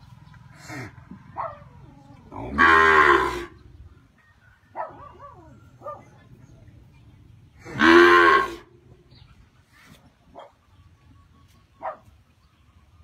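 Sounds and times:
cow mooing: 2.3 - 3.6, 7.7 - 8.7.

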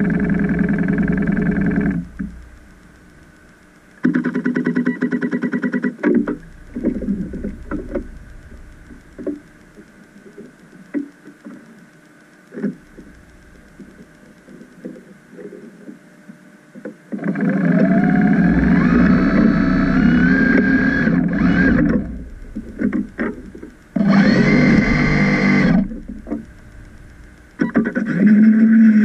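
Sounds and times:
electric thrusters running: 0.0 - 4.0, 6.2 - 10.0, 17.6 - 28.0
knocks and clicks: 6.0 - 11.5, 17.8 - 28.0.

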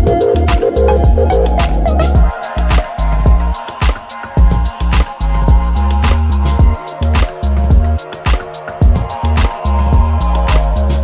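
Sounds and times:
electronic music with heavy bass: 0.0 - 11.0.

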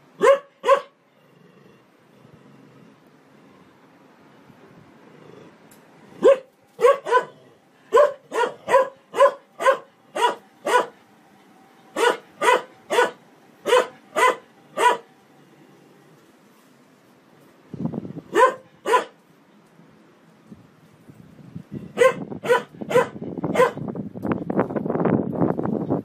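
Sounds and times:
dog barking: 0.2 - 1.0, 6.2 - 11.0, 12.0 - 15.1, 18.3 - 19.2, 22.0 - 23.8.

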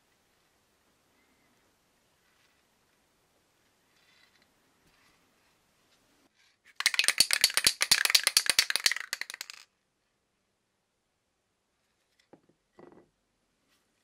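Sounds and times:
spray can mixing ball rattling: 6.8 - 9.6.

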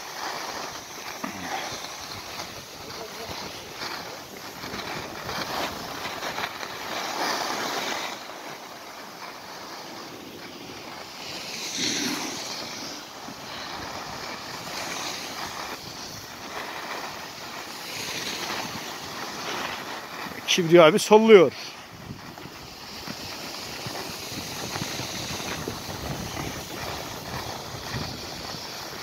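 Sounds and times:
wind on microphone: 0.0 - 8.4, 9.2 - 29.0
skis scraping over snow: 0.0 - 29.0.

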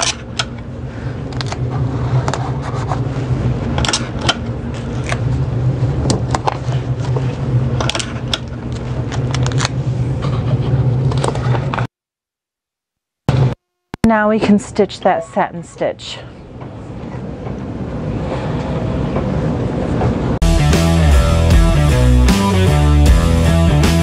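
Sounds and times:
low mechanical hum: 0.0 - 11.9, 13.3 - 20.4.

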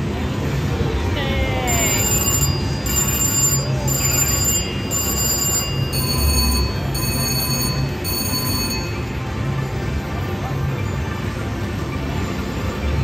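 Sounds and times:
casino noise: 1.7 - 9.6
slot machine chime tones: 1.7 - 9.8.

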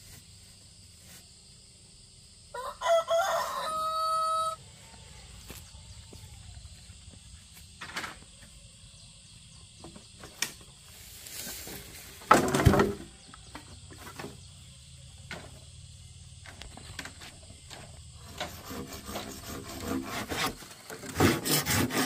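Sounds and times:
rough scraping rustle: 0.0 - 1.6, 10.2 - 14.5, 16.4 - 22.0
rooster crowing: 2.5 - 6.7.

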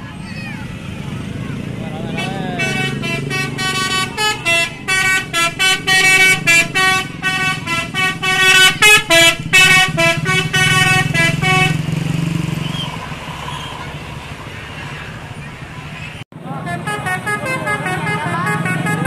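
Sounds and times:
bus engine droning: 0.0 - 19.0
tuned bus horns playing melody: 2.0 - 12.0, 16.6 - 19.0.

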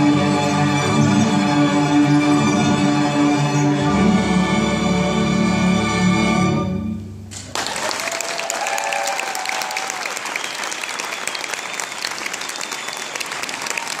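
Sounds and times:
audience applause: 7.4 - 14.0.

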